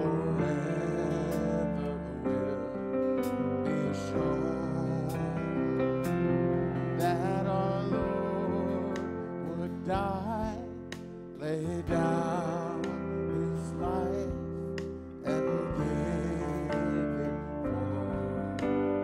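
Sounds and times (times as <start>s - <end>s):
held instrumental accompaniment: 0.0s - 19.0s
person singing worship song: 0.0s - 19.0s.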